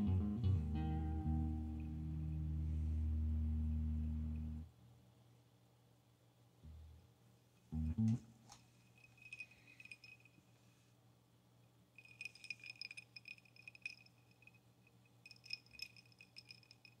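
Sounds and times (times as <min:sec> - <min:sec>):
ice cubes clinking in a glass: 0:12.0 - 0:14.5, 0:15.3 - 0:17.0.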